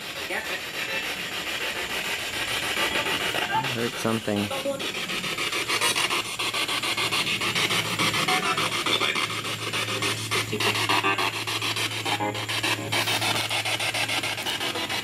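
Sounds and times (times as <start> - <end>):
radio static sweeping: 2.6 - 15.0
low hum: 4.5 - 15.0.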